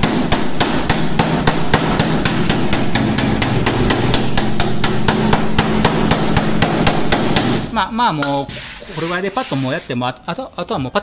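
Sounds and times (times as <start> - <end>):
hammer tapping steel: 0.0 - 8.4.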